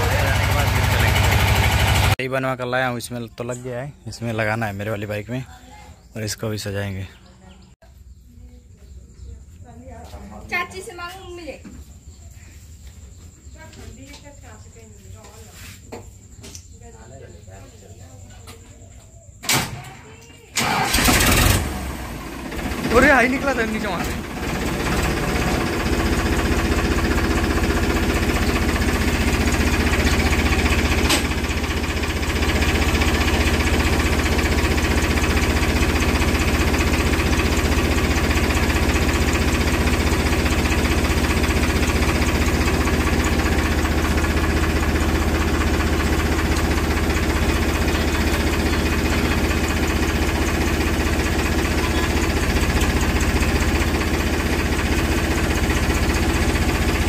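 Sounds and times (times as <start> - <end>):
engine idling: 0.0 - 2.2, 20.6 - 57.0.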